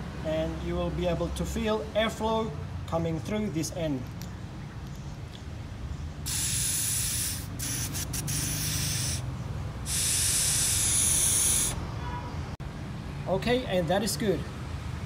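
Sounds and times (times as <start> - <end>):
air hissing through valve: 6.2 - 11.8.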